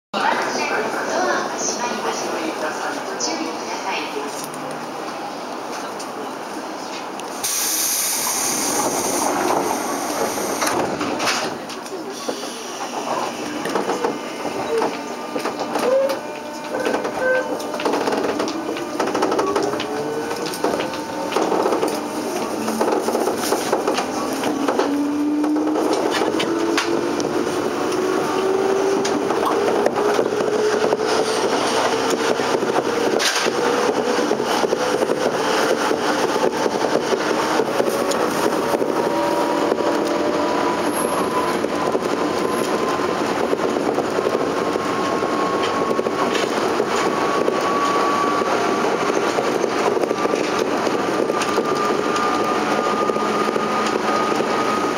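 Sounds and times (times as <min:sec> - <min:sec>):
train wheel clatter on rails: 0:06.9 - 0:54.9
compressed air hiss: 0:07.4 - 0:10.6.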